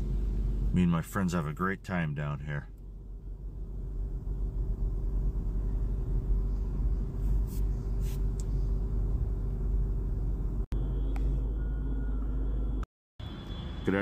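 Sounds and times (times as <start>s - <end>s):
steady hum: 0.0s - 13.9s
city street traffic rumble: 0.0s - 14.0s.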